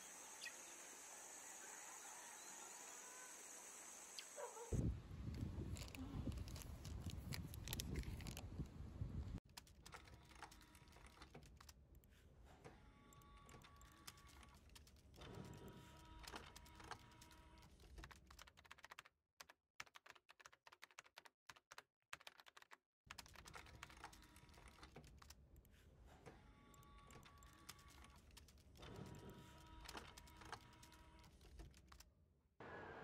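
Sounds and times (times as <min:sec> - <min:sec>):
faint rapid clicking and tapping: 0:09.4 - 0:32.1.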